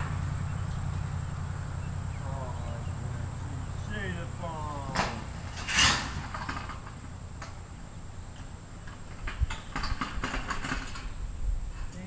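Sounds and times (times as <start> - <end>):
loud rustle: 4.9 - 7.0.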